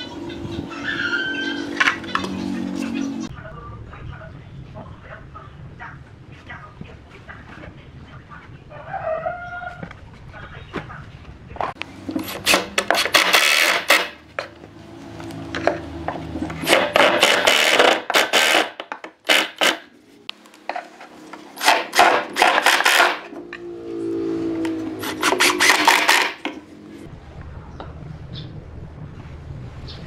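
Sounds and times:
impact driver rattling: 16.5s - 19.9s, 21.6s - 23.3s, 25.1s - 26.6s.

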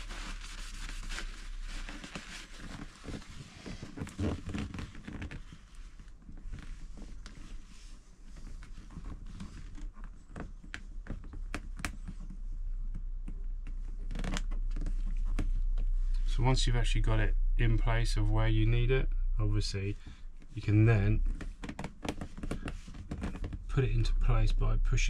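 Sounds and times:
tissue rustling: 0.0s - 10.6s.

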